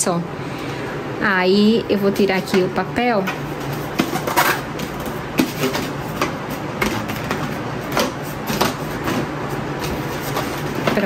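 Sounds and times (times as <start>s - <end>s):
card scraping against plastic: 3.6s - 11.0s.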